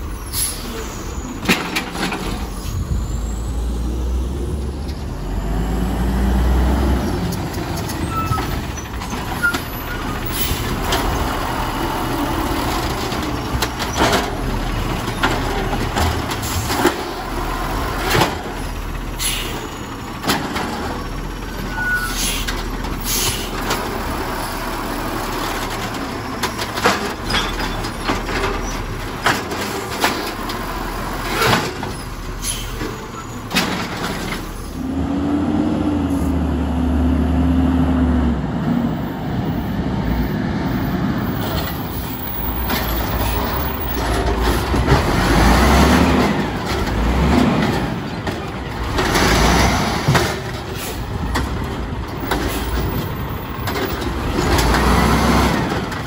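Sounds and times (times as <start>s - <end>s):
air brakes hissing: 0.0s - 1.4s, 19.2s - 19.8s, 21.7s - 23.6s, 32.3s - 33.4s, 50.7s - 51.2s
truck engine rumbling: 0.0s - 56.0s
carts banging against hopper: 1.4s - 2.5s, 31.2s - 32.0s, 41.3s - 56.0s.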